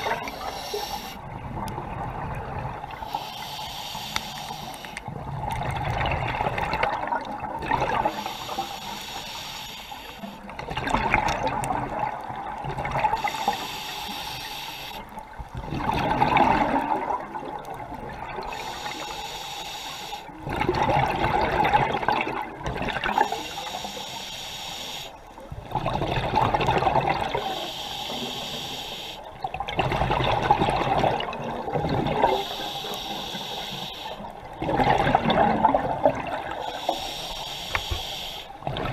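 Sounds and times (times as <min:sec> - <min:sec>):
regulator inhalation hiss: 0:00.0 - 0:01.2, 0:03.0 - 0:05.1, 0:08.1 - 0:10.4, 0:13.2 - 0:15.0, 0:18.5 - 0:20.3, 0:23.1 - 0:25.3, 0:27.4 - 0:29.3, 0:32.3 - 0:34.3, 0:36.6 - 0:38.6
exhaled bubbles underwater: 0:00.0 - 0:03.3, 0:04.4 - 0:08.8, 0:10.0 - 0:19.2, 0:20.3 - 0:24.1, 0:25.2 - 0:37.1, 0:37.7 - 0:38.9.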